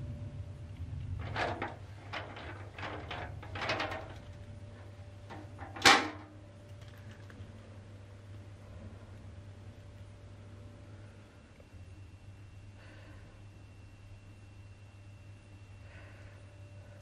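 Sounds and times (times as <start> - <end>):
fan shutter slats clattering: 1.2 - 4.3, 5.3 - 6.3.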